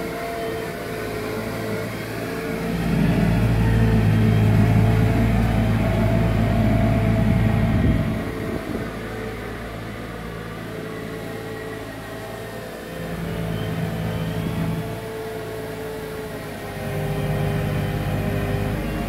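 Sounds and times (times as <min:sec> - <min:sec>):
diesel sweeper engine running: 0:00.0 - 0:19.0.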